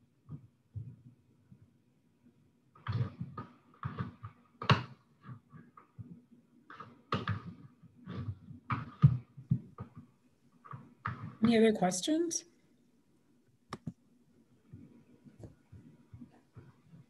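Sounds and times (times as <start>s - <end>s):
soft taps and knocks: 14.6s - 17.0s.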